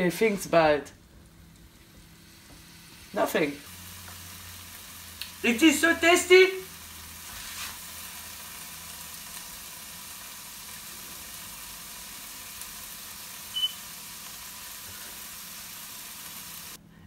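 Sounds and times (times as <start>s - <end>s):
tofu sizzling in a pan: 1.3s - 16.8s
short high beep: 13.5s - 13.8s.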